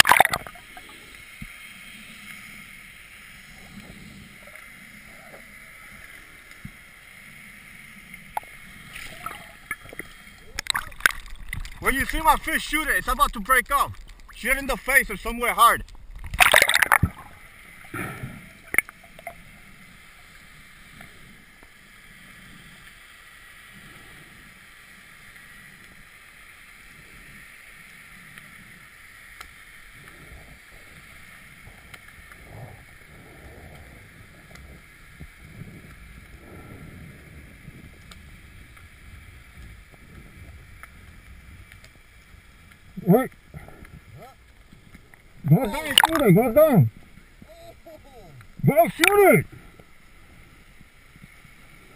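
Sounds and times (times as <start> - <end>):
water splash: 0.0 - 0.8, 8.3 - 19.4, 45.6 - 46.5
muffled underwater hiss: 0.0 - 51.9
soft underwater swishes: 0.0 - 51.9.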